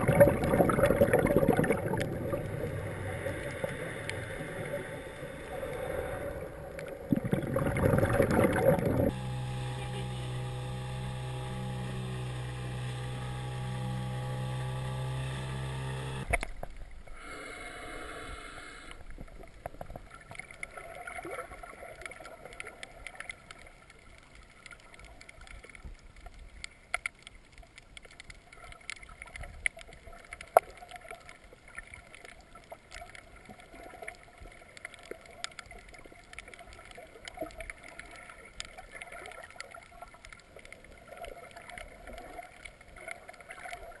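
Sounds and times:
underwater crackling clicks: 0.0 - 2.6, 14.3 - 16.9, 18.8 - 44.0
underwater hiss: 0.2 - 9.1, 17.0 - 19.2
outboard motor droning: 1.9 - 6.6, 8.2 - 16.5.

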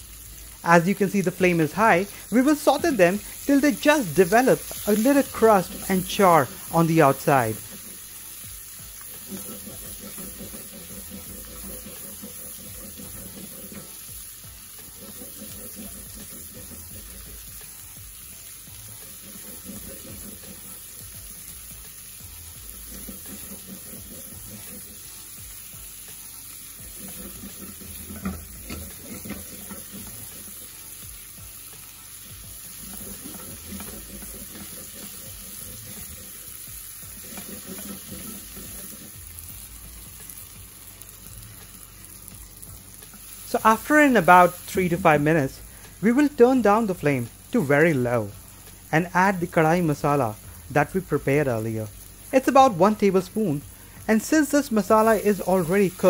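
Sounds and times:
vegetables sizzling in oil: 0.0 - 56.0
spatula scraping a pan: 2.1 - 25.7, 26.3 - 31.3, 32.2 - 39.7
spatula knocking on pan: 9.2 - 14.1, 14.8 - 17.4, 26.8 - 30.8, 32.5 - 36.5, 37.1 - 39.1.

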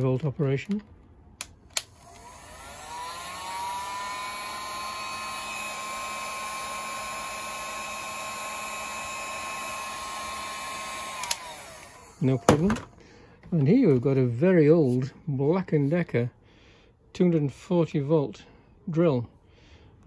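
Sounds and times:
heat gun fan whining: 1.4 - 13.6
heat gun switch click: 11.1 - 12.0.

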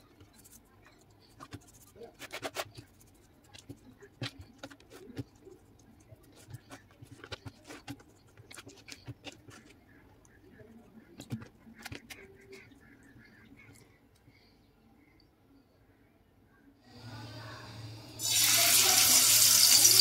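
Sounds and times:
fingers scratching fish skin: 0.1 - 10.0.

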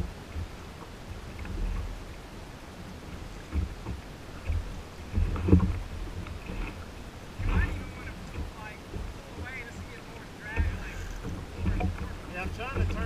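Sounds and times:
water lapping against kayak hull: 0.0 - 13.0
wind buffeting microphone: 3.0 - 13.0.

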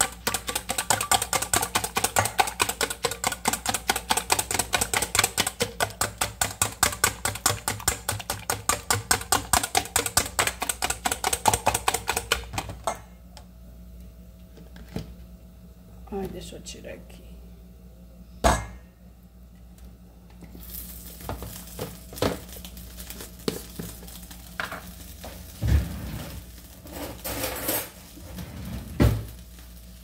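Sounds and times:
whisk beating eggs in metal bowl: 0.0 - 12.7.

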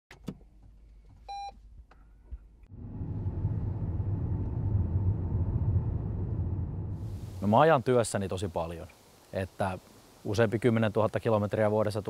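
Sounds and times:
car start-up beep: 1.3 - 1.5
car rumble inside cabin: 2.7 - 7.4.

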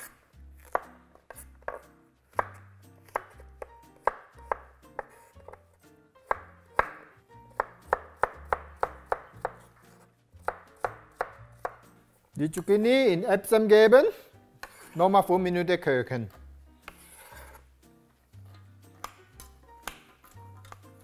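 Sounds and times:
knife chopping on wooden board: 0.0 - 5.6, 6.2 - 11.9, 14.6 - 15.0.

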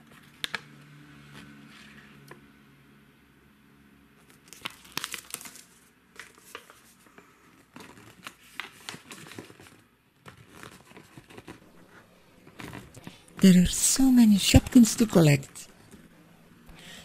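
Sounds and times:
paper crinkling and rustling: 4.2 - 13.6.

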